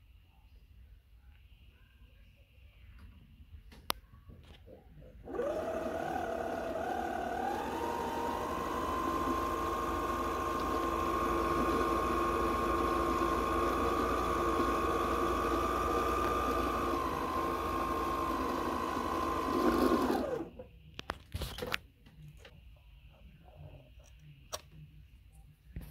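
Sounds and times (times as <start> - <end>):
sewing machine motor whine: 5.2 - 20.6.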